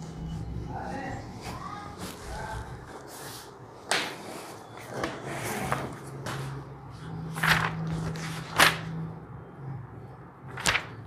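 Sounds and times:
low steady hum: 0.0 - 3.9
paper pages rustling: 1.4 - 9.0, 10.5 - 11.0.

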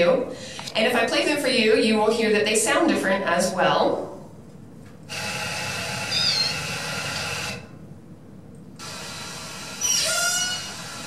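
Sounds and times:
loudspeaker background hiss: 0.0 - 5.2
killer whale pulsed calls: 5.8 - 7.4, 9.8 - 11.0.

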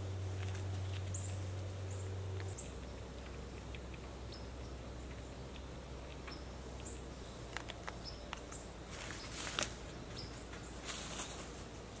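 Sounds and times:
low steady hum: 0.0 - 12.0
rustling: 7.4 - 12.0.

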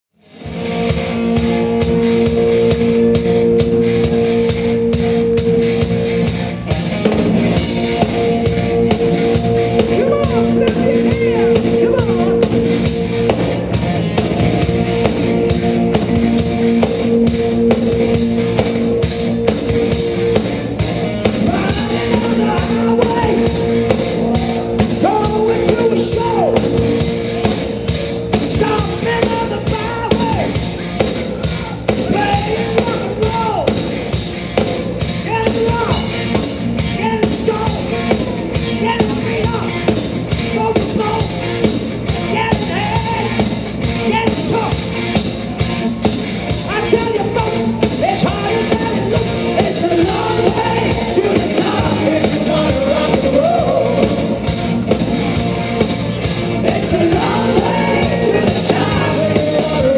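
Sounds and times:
hard rock band playing: 0.1 - 59.9
person singing: 21.4 - 26.9, 46.7 - 54.5, 56.5 - 59.9.

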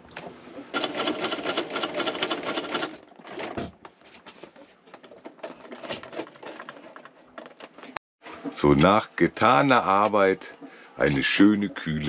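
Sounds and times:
sewing machine stitching: 0.7 - 3.7.

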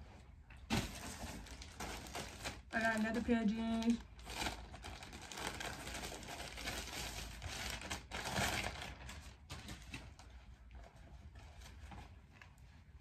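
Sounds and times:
plastic packaging crinkling: 0.7 - 10.3.

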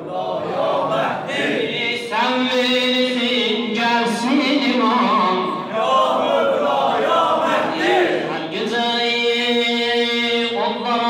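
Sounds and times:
man chanting unaccompanied: 1.2 - 6.0, 7.7 - 11.0.

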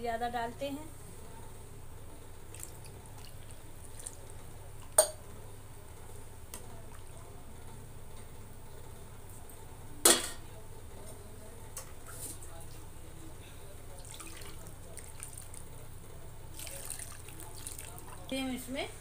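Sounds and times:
steady low hum: 0.0 - 19.0
ladle stirring sloshing liquid: 13.9 - 15.6, 16.5 - 18.4.

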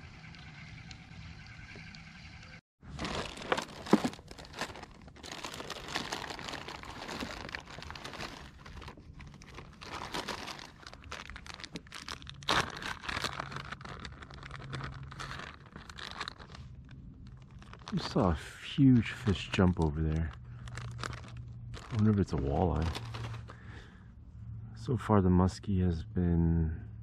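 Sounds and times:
plastic bags crinkling: 2.9 - 23.6.

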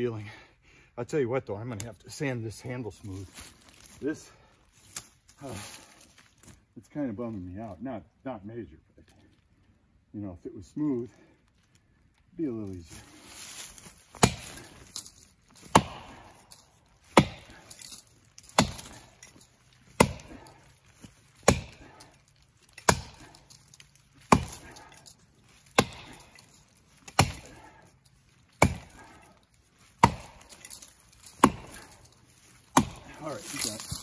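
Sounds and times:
axe chopping into tree trunk: 13.6 - 27.8, 28.5 - 34.0.

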